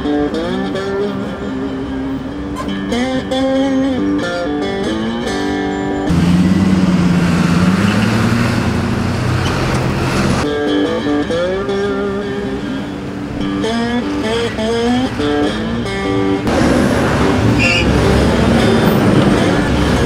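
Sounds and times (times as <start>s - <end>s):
blues guitar notes plucked: 0.0s - 20.0s
city street traffic: 0.0s - 20.0s
large vehicle engine running: 6.1s - 10.5s, 14.1s - 20.0s.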